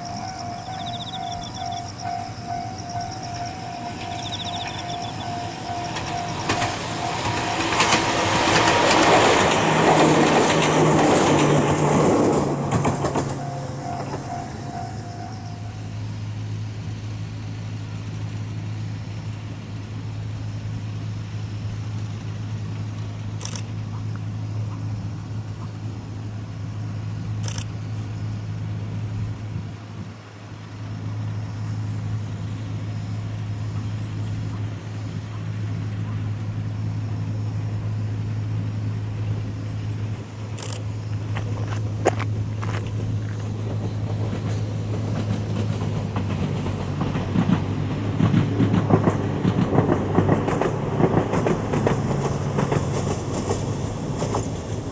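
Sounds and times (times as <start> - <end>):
ringing tone: 0.0 - 8.0, 13.1 - 16.0
train wheels on rails: 0.0 - 19.7, 31.1 - 54.9
electric train passing: 0.0 - 54.9.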